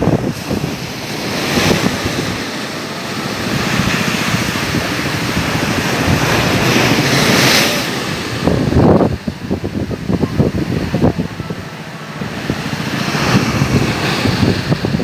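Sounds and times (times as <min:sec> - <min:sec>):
sea surf breaking: 0:00.0 - 0:15.0
wind buffeting microphone: 0:00.0 - 0:15.0.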